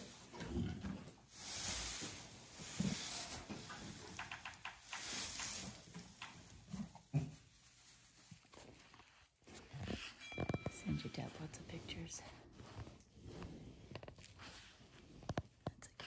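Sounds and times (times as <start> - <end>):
soft thuds of hooves: 0.0 - 8.9
straw rustling: 0.0 - 9.5.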